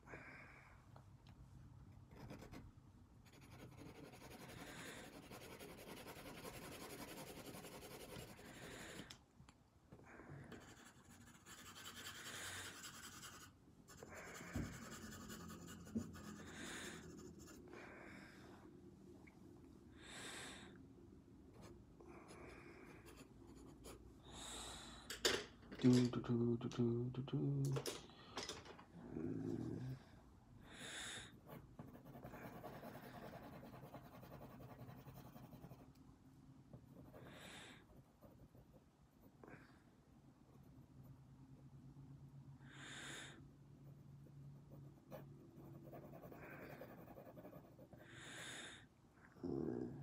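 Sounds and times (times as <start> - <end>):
pencil scratching on paper: 2.1 - 9.1, 10.5 - 17.7, 31.4 - 36.0, 36.7 - 39.3, 43.8 - 48.1.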